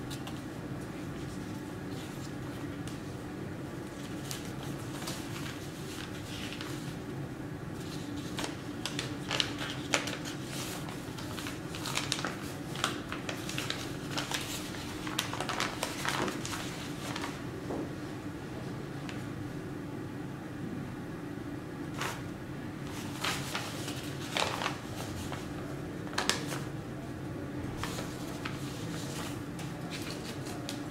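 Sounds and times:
paper rustling and crinkling: 0.0 - 3.1, 3.8 - 7.0, 7.8 - 17.4, 22.0 - 22.2, 22.8 - 26.7, 27.7 - 30.9.

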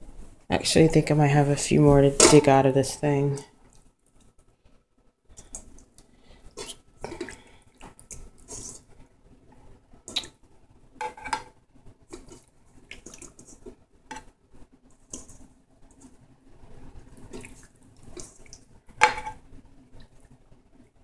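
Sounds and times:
wet squelches and slaps: 10.1 - 10.4, 17.2 - 18.6.

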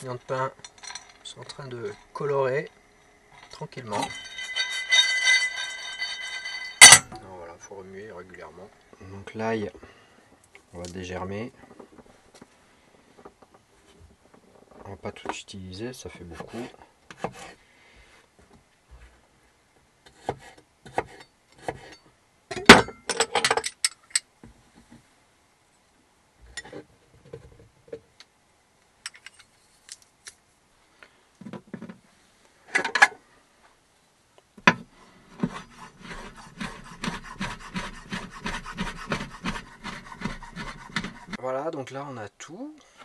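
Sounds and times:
fast knife chopping: 35.4 - 41.4.

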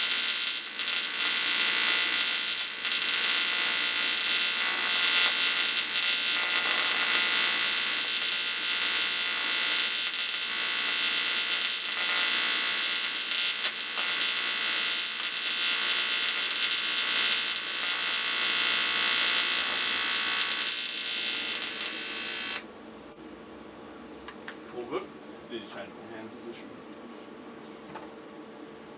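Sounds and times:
welding arc buzzing: 0.0 - 22.7.

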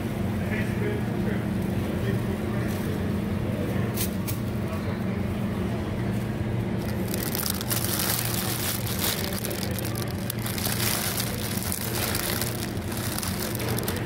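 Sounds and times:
plastic bags crinkling: 6.8 - 14.0.

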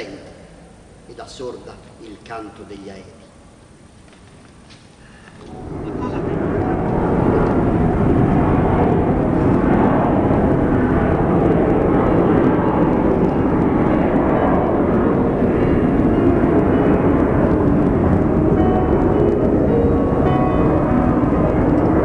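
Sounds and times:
airplane engines droning: 0.0 - 22.0
person speaking: 5.8 - 6.4.

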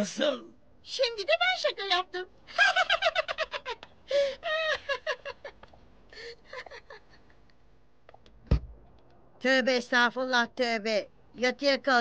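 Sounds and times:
woman laughing: 2.5 - 7.4.

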